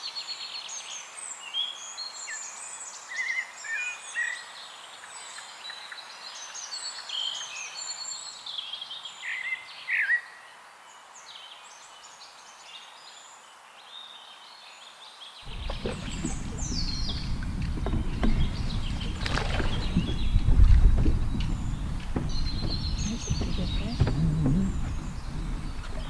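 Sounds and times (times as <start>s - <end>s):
small birds chirping: 13.9s - 26.0s
wind buffeting microphone: 15.4s - 26.0s
faint clicks: 15.5s - 26.0s.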